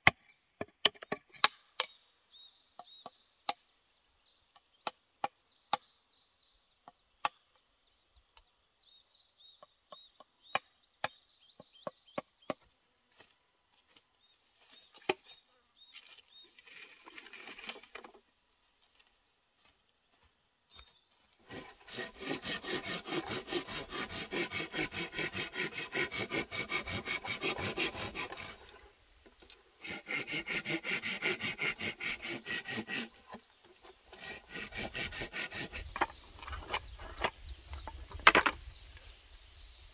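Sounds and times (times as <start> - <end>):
hand saw cutting bamboo: 21.4 - 28.9, 29.5 - 37.3.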